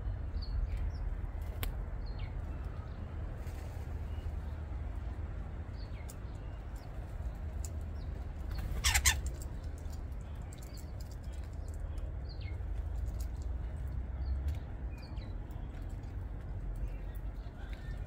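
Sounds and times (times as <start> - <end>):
loud harsh bird call: 8.5 - 9.3.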